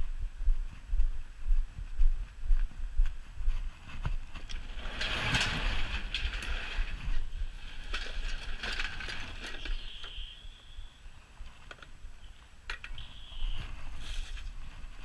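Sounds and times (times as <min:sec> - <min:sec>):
wooden garage door scraping open: 0:04.7 - 0:07.0.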